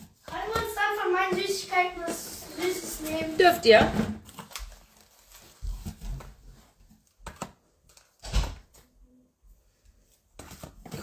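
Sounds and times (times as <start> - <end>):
plastic packs clicking on table: 7.2 - 8.8.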